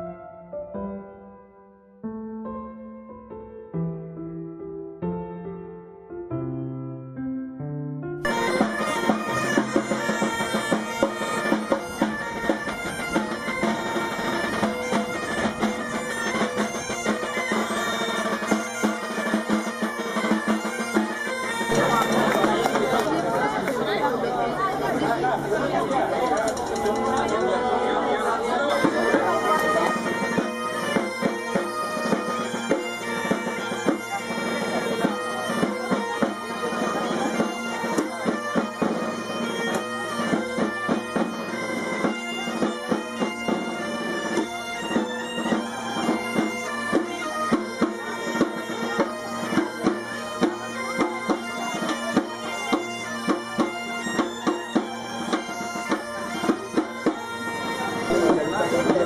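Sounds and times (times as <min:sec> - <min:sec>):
bagpipes playing a tune: 0:08.2 - 0:59.0
drum striking a beat: 0:18.5 - 0:23.2.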